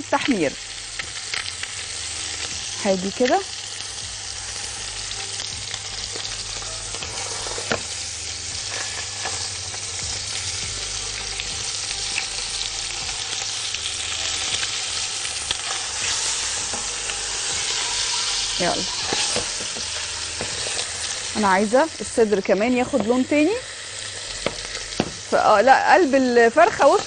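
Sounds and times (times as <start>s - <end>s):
chicken sizzling in pot: 0.0s - 27.0s.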